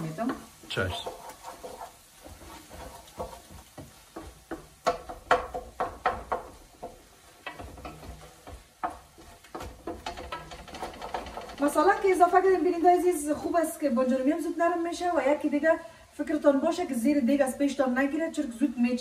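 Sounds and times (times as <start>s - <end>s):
wooden spoon scraping a pot: 0.0s - 14.8s
faint sizzle: 0.0s - 19.0s.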